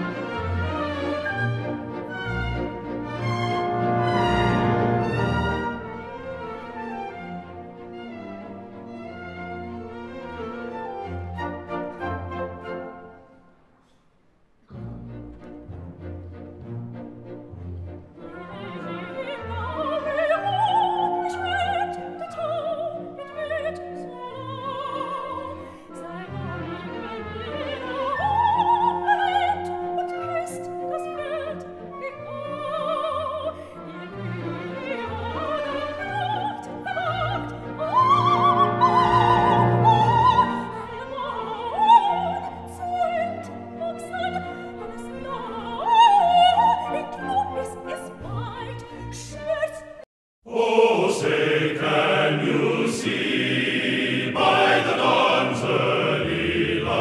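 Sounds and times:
orchestra playing: 0:00.0 - 0:13.3, 0:14.7 - 0:22.2, 0:33.8 - 0:41.9, 0:50.5 - 0:57.0
operatic voice singing: 0:50.5 - 0:57.0.

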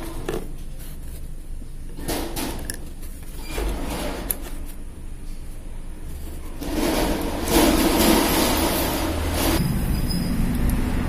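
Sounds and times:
handling metal parts: 0:01.8 - 0:05.5, 0:06.1 - 0:10.7.

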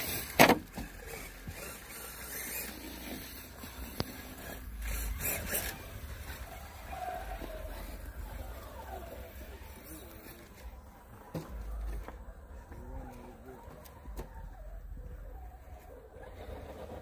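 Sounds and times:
small electric motor and gearing: 0:00.0 - 0:10.6.

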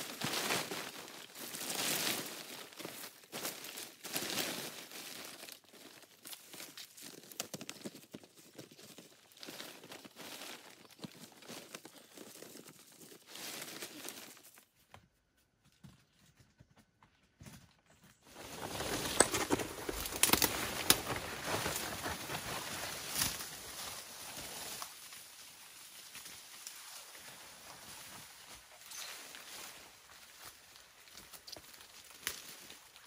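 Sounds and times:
leaves rustling: 0:08.8 - 0:14.6, 0:18.3 - 0:33.0
twigs snapping: 0:19.0 - 0:22.0.

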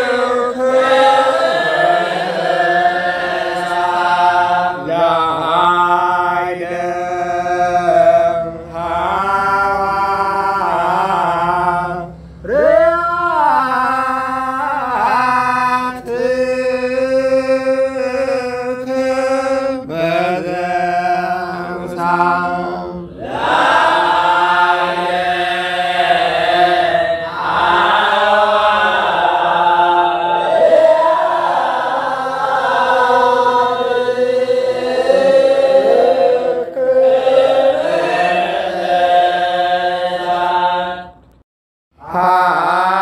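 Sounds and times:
church chant sung: 0:00.0 - 0:41.4, 0:42.0 - 0:43.0
singer breathing: 0:12.1 - 0:12.5.

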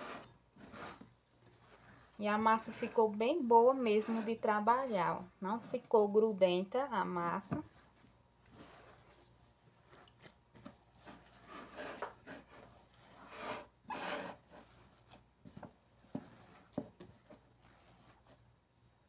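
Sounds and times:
faint rubbing and scraping: 0:00.0 - 0:06.3, 0:07.6 - 0:19.0
hands kneading dough in bowl: 0:00.0 - 0:19.0.

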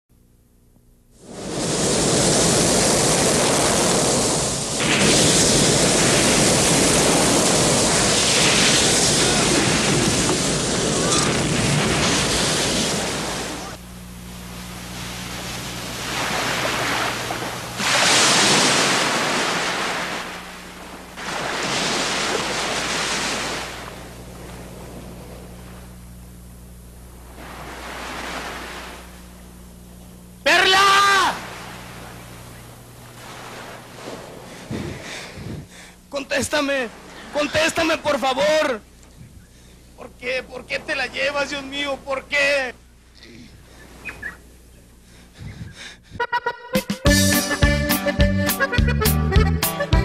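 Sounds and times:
ocean surf washing up beach: 0:01.2 - 0:26.2, 0:27.0 - 0:29.8, 0:30.5 - 0:35.5, 0:36.2 - 0:38.8, 0:40.0 - 0:42.8.

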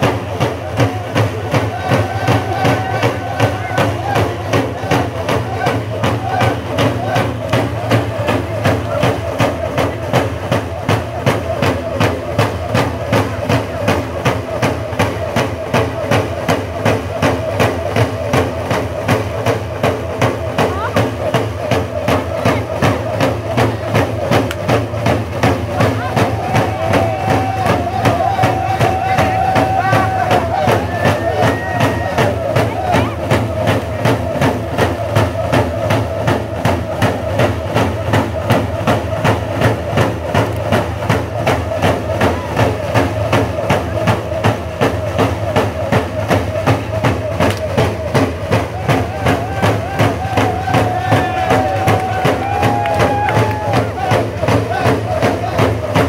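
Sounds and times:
frame hand drums beating: 0:00.0 - 0:56.0
men chanting: 0:00.4 - 0:10.2, 0:25.5 - 0:40.1, 0:41.4 - 0:56.0.

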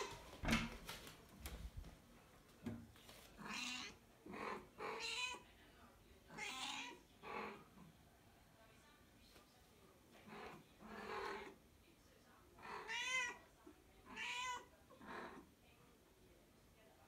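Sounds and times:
cat meowing: 0:12.7 - 0:13.4, 0:14.1 - 0:14.7.

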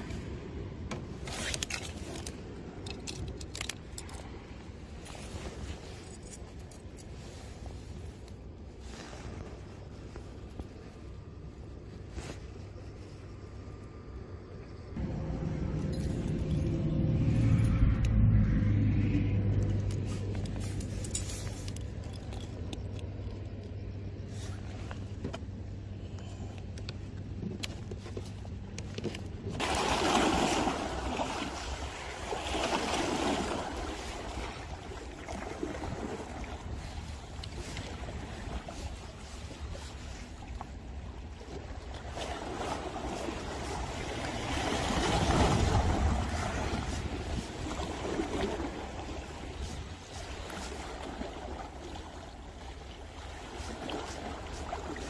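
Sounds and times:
steady low rumble: 0:01.9 - 0:29.6
vehicle engine rumble passing: 0:14.8 - 0:24.0
waves washing against rocks: 0:29.6 - 0:36.8, 0:42.1 - 0:52.5.

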